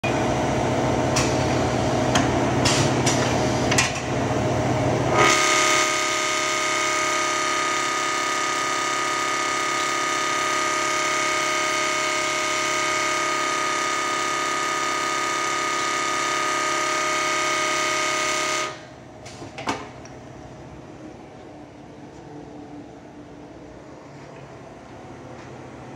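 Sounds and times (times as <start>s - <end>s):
machine running noise: 0.0s - 25.9s
sanding wheel whine: 5.1s - 18.8s.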